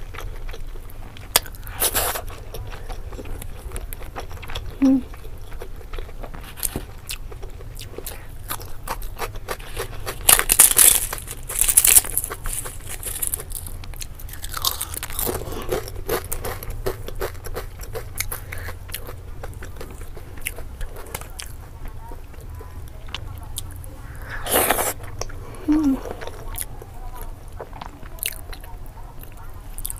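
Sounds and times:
crackers crunching: 0.0s - 29.9s
chewing and wet mouth clicks: 26.0s - 29.9s.

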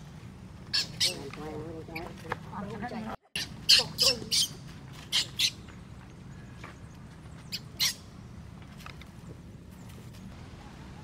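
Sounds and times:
baby monkey squealing: 0.7s - 1.2s, 3.4s - 5.6s, 7.5s - 8.1s.

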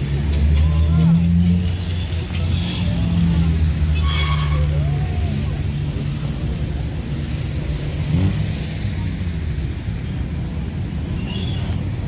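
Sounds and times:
faint voices: 0.0s - 7.8s
city street rumble: 0.0s - 12.0s.

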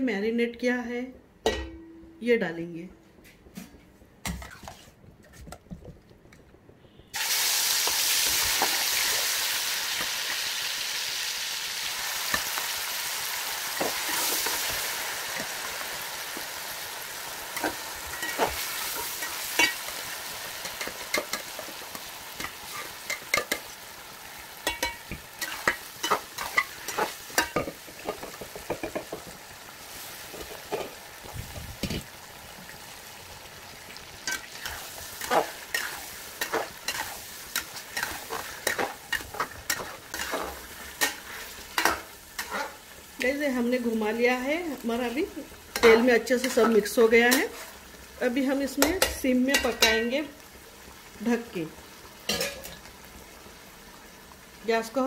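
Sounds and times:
chicken sizzling in hot oil: 7.1s - 55.0s.

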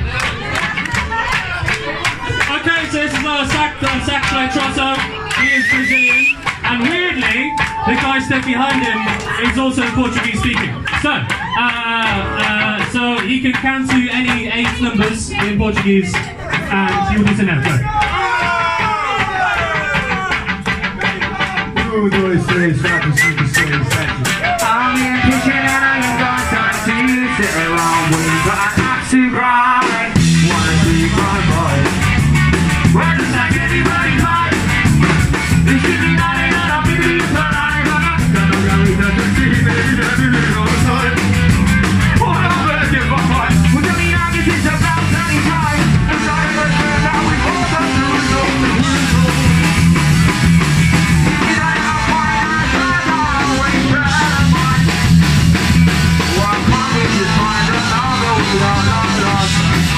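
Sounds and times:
heavy bass: 0.0s - 18.0s, 18.7s - 59.9s
drums: 0.0s - 59.9s
person singing: 3.6s - 10.8s, 22.9s - 32.0s, 32.7s - 34.7s, 35.6s - 41.5s, 42.2s - 49.8s, 51.2s - 55.1s, 56.2s - 59.9s
horns: 5.3s - 6.6s
electric guitar: 29.7s - 59.9s.

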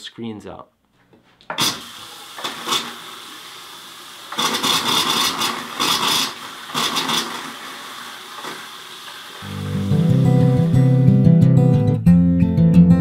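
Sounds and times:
faucet water running: 1.6s - 11.1s.

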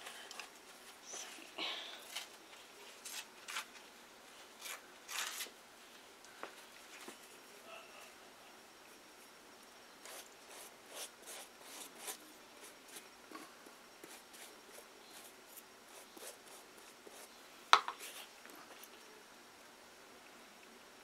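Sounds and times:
paintbrush brushing on cardboard: 10.0s - 13.1s, 14.0s - 18.9s.

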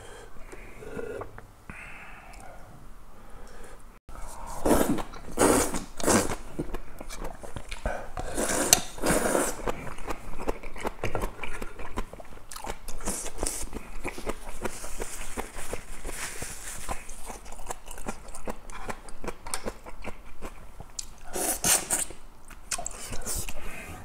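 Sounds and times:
person slurping noodles: 4.3s - 6.5s, 7.3s - 17.4s, 21.2s - 22.2s
wet chewing: 5.0s - 23.6s.

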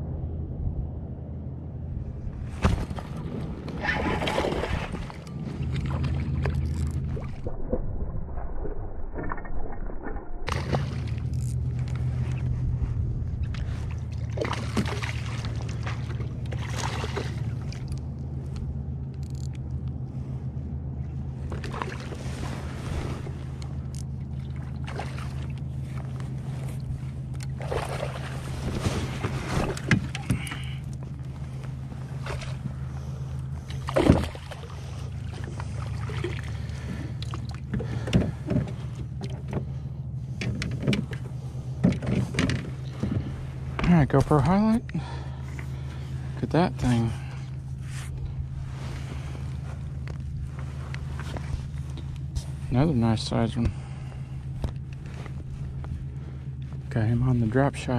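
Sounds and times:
boat motor humming: 0.0s - 57.9s
water splashing: 2.6s - 11.7s, 13.4s - 18.0s, 21.4s - 30.8s, 33.6s - 38.4s.

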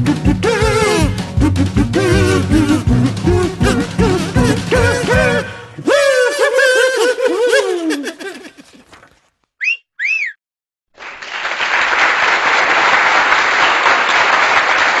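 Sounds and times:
short whistles: 9.6s - 10.4s
applause: 10.9s - 15.0s.

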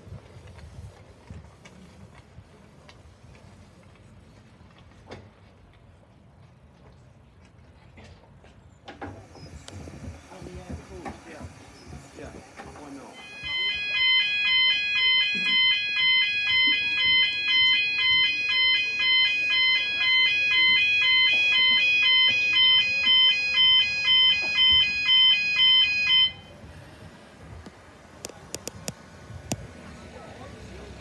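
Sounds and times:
level crossing alarm pulses: 10.3s - 26.7s.

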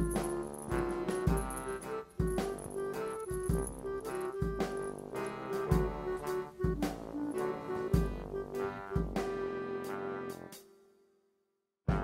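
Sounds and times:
light instrumental tune: 0.0s - 10.8s.

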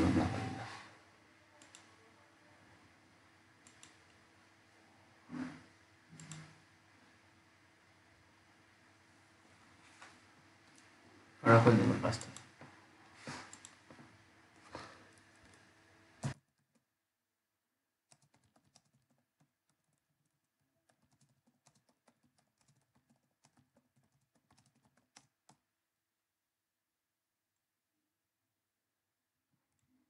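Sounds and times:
typing on computer keyboard: 1.6s - 1.9s, 3.6s - 4.2s, 6.2s - 6.5s, 18.1s - 25.6s.

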